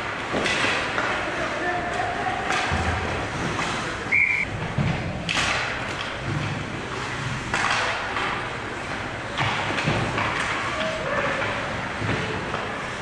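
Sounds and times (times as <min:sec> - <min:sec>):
knocks of sticks and puck: 0:00.0 - 0:03.9, 0:04.5 - 0:12.8
referee's whistle blast: 0:04.1 - 0:04.5.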